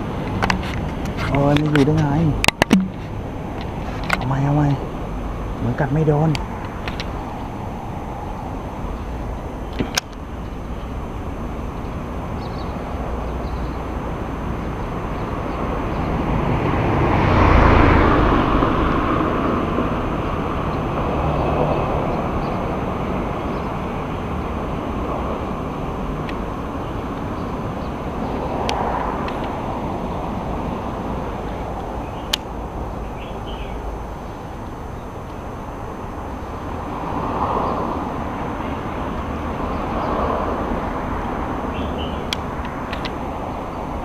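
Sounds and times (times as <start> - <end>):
street traffic noise: 0.0 - 44.0
sharp knock: 2.5 - 3.0
vehicle passing close by: 10.3 - 34.6, 35.6 - 44.0.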